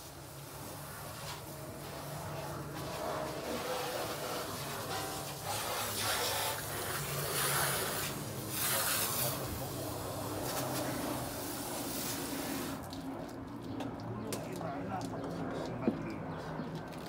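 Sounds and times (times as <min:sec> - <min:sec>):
water spraying from hose nozzle: 0:02.8 - 0:13.0.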